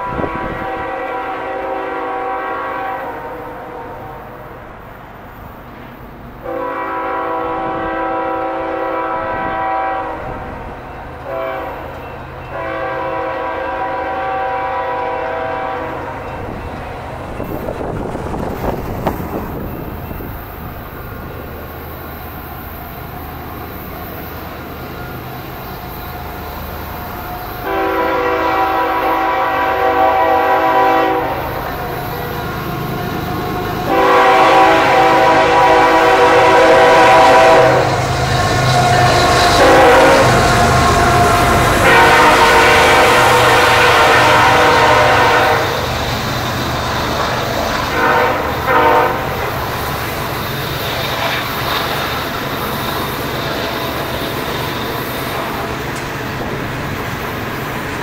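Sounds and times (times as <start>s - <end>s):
locomotive air horn blasts: 0.0s - 4.3s, 6.4s - 10.5s, 11.2s - 11.9s, 12.5s - 16.2s, 27.2s - 45.9s, 47.9s - 49.5s.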